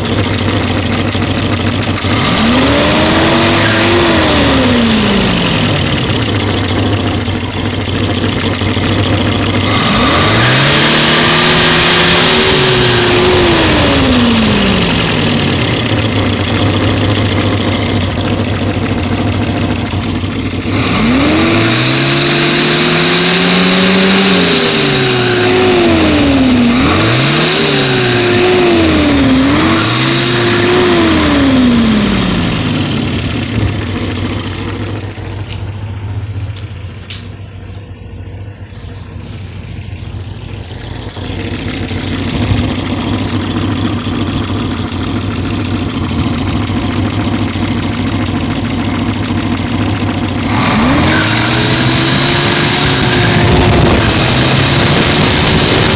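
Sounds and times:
car engine revving and idling: 0.0s - 55.9s
high engine screech: 38.5s - 44.2s.

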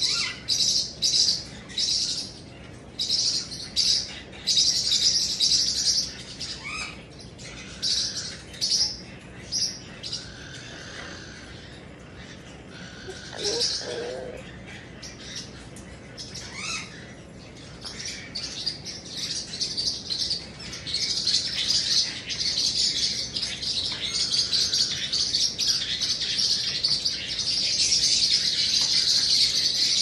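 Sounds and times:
cockatoo hissing: 12.8s - 14.4s.

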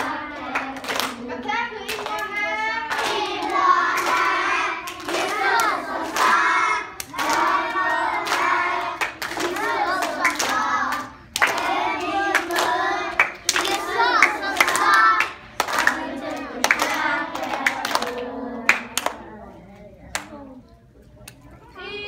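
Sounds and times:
young children singing: 0.0s - 19.3s.

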